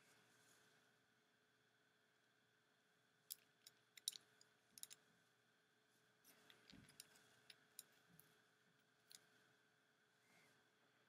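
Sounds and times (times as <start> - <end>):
plastic pieces clicking together: 3.3 - 5.0.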